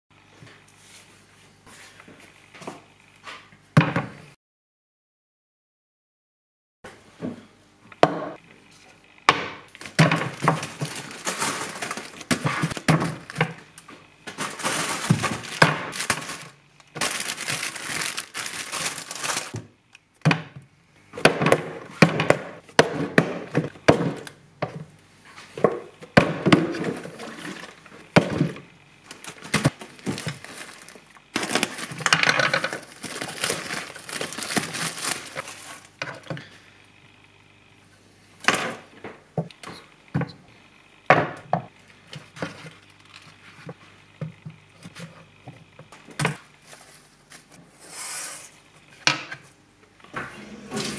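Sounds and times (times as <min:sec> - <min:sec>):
rustling: 0:14.4 - 0:19.5.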